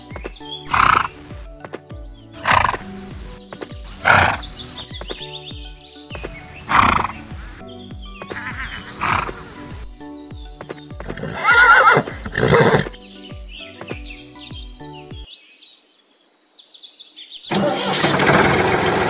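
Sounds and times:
light background music: 0.0 - 15.4
horse neighing and whinnying: 4.0 - 4.5, 8.4 - 9.5, 11.0 - 13.0.

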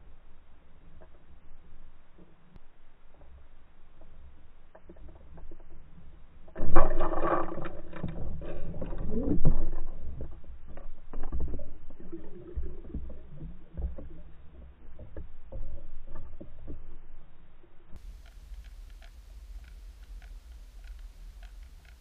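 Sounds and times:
muffled underwater churning: 6.6 - 17.2.

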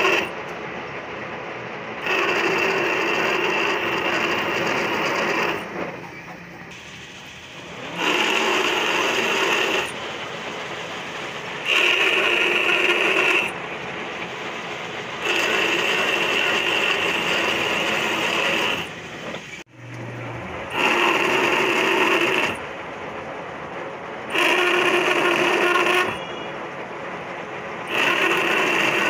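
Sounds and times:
metal lathe cutting thread: 0.0 - 0.4, 2.0 - 6.0, 6.7 - 14.4, 15.0 - 22.7, 24.2 - 26.4, 27.8 - 29.0.

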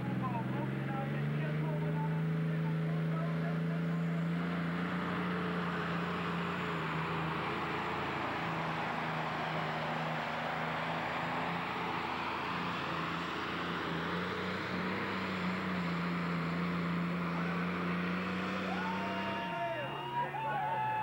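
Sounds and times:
tractor diesel engine under load: 0.0 - 21.0.

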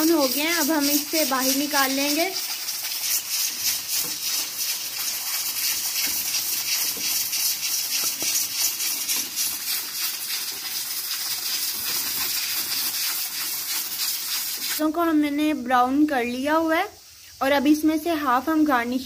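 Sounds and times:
wooden spatula scraping: 0.0 - 14.8
onions sizzling in hot oil: 0.0 - 19.0.

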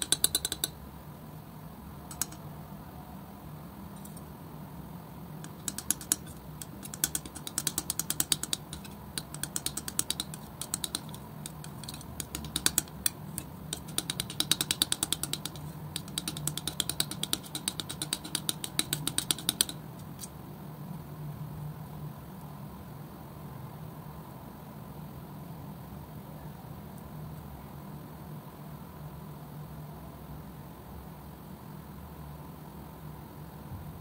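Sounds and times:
palette knife clicking on paint: 0.0 - 0.8, 2.1 - 2.4, 5.4 - 20.3
low steady hum: 0.0 - 34.0.

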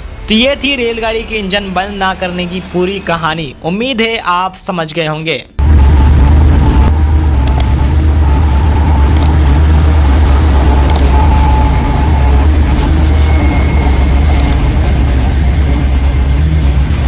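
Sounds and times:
heavy engine rumbling: 5.6 - 17.0.

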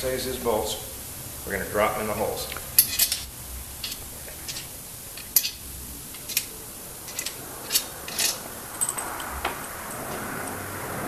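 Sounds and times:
bolts clinking into holes: 2.8 - 10.2.

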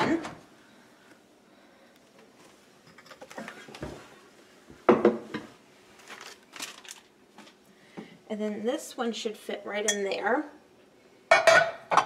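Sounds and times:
casserole dishes knocking and scraping: 4.8 - 5.6.

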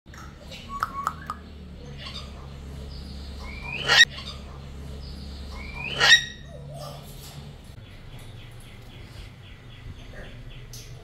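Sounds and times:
cockatoo harsh calls: 0.3 - 7.1.

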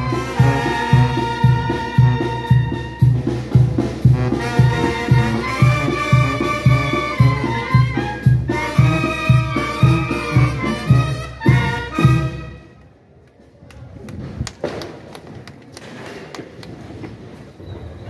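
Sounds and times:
band music with low beat: 0.0 - 12.6.

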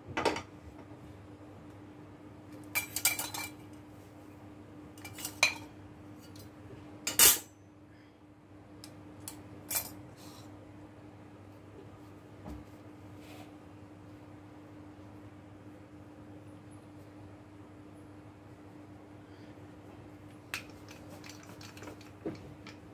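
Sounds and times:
dishes and utensils clattering: 2.8 - 3.6, 5.0 - 6.4, 7.1 - 7.5.

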